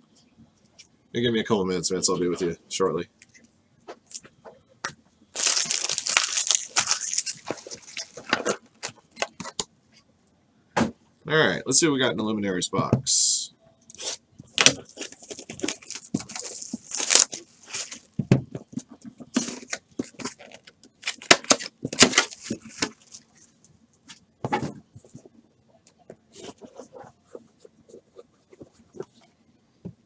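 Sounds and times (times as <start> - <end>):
wrapper tearing and crinkling: 5.4 - 8.6, 14.6 - 18.1.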